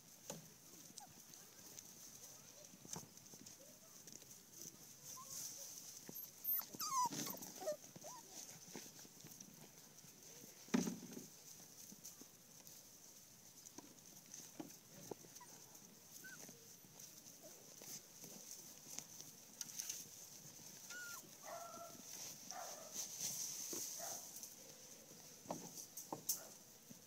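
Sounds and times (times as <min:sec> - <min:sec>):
puppies scuffling on grass: 0:00.0 - 0:27.0
puppies squeaking and whining: 0:06.0 - 0:08.4, 0:16.1 - 0:16.5, 0:20.8 - 0:21.3.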